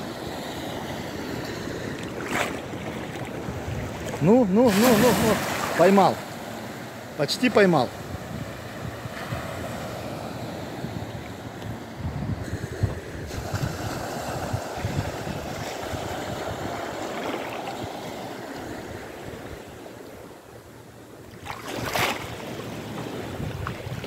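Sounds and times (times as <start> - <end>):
rush of water: 0.0 - 10.1, 10.9 - 20.0, 21.2 - 24.0
small waves washing: 0.0 - 24.0
wind buffeting microphone: 0.9 - 5.7, 7.9 - 17.2, 22.4 - 24.0.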